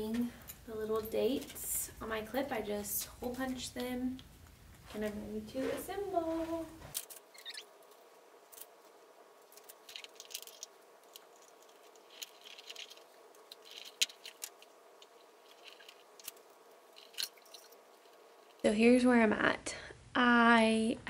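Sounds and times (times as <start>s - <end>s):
faint room hum: 0.0s - 21.0s
paper cards rustling: 4.7s - 18.6s.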